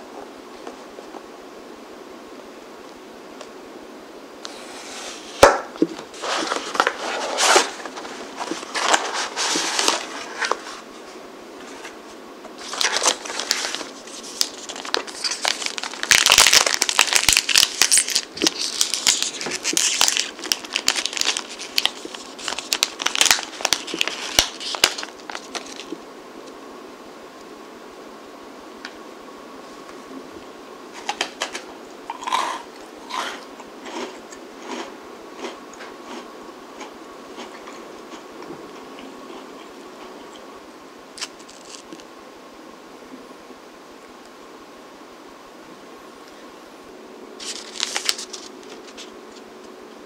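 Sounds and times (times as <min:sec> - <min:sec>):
packaging crinkling and rustling: 0:05.4 - 0:10.9, 0:12.6 - 0:26.0, 0:41.2 - 0:42.0, 0:47.4 - 0:49.5.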